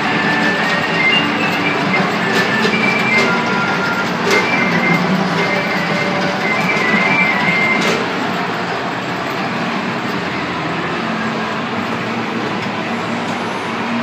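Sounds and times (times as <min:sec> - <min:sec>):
music: 0:00.0 - 0:09.2
ride mechanical rumble: 0:00.0 - 0:14.0.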